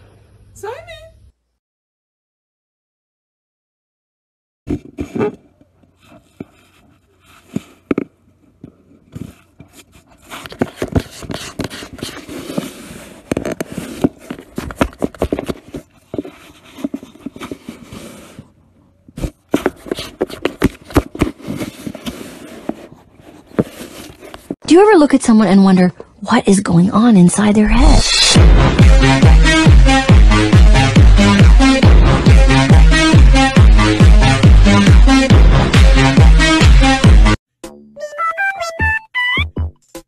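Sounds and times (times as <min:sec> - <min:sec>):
cat scratching cardboard box: 0:09.1 - 0:24.6.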